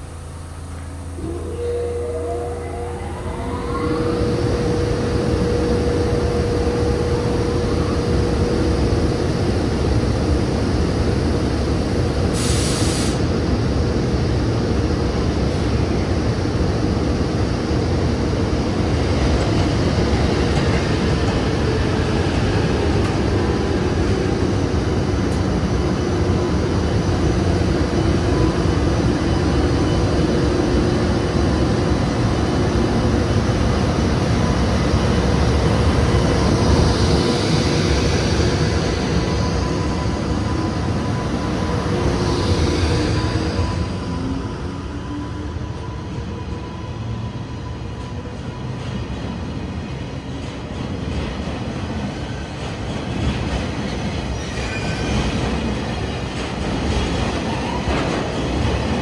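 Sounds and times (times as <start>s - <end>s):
steady tone: 0.0s - 10.4s
train wheels rumbling on rail: 3.4s - 59.0s.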